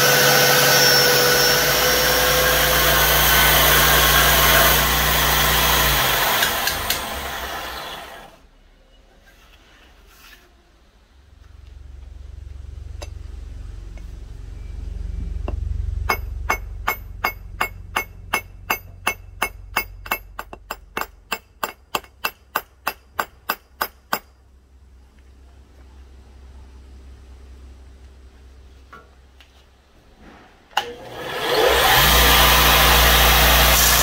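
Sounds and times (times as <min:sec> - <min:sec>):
low rumble: 0:10.9 - 0:20.5
hammer striking metal: 0:15.4 - 0:24.4.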